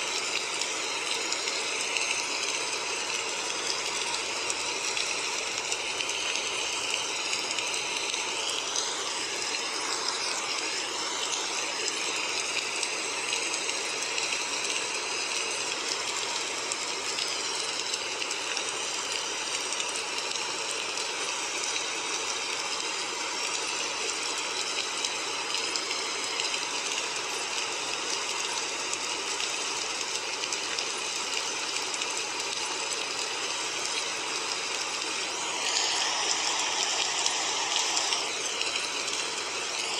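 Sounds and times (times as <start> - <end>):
hissing rushing noise: 35.0 - 39.9.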